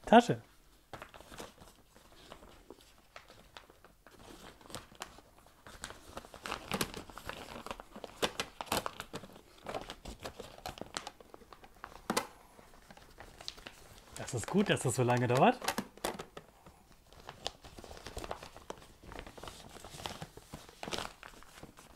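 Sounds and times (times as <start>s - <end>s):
plastic bag rustling: 17.0s - 21.9s.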